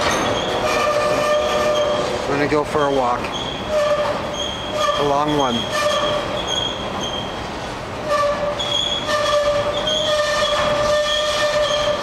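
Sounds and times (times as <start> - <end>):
train wheels squealing: 0.0 - 2.2, 2.8 - 7.4, 8.1 - 12.0
rolling rumble of train cars: 0.0 - 12.0.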